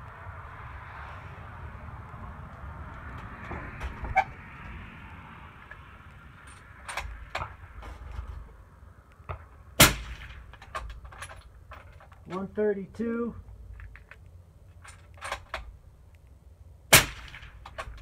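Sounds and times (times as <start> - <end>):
rifle handling clicks and knocks: 5.6 - 12.6, 13.5 - 16.4, 17.2 - 18.0
suppressed rifle shot: 9.8 - 10.4, 16.9 - 17.6.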